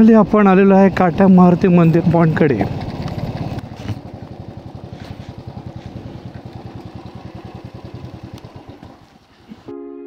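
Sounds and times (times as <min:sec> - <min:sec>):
motorcycle engine running: 0:00.0 - 0:09.7
music: 0:09.6 - 0:10.0.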